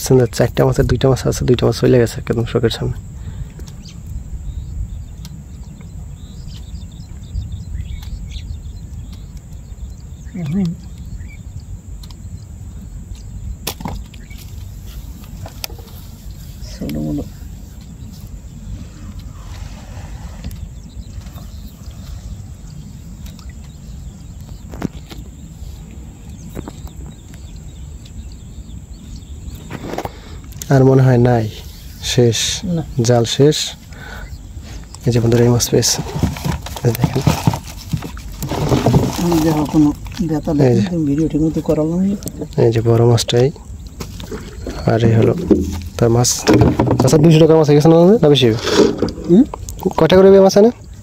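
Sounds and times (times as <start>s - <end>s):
faint bird chirps: 0.0s - 51.0s
low outdoor rumble: 0.0s - 51.0s
light ticks: 2.3s - 4.2s, 7.9s - 8.2s, 12.0s - 12.2s.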